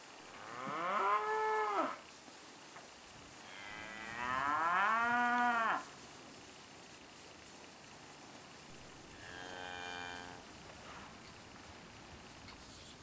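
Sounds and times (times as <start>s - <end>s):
cow mooing: 9.1s - 10.4s.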